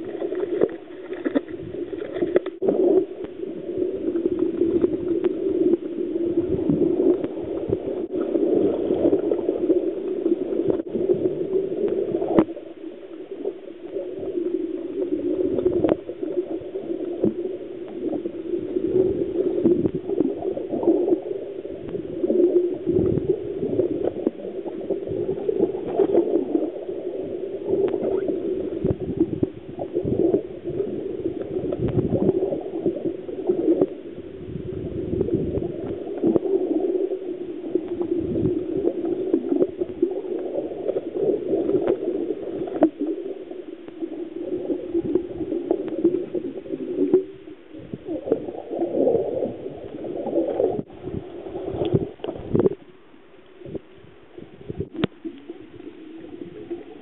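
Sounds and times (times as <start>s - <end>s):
short knocks underwater: 0.0s - 3.4s
muffled underwater gurgle: 0.0s - 57.0s.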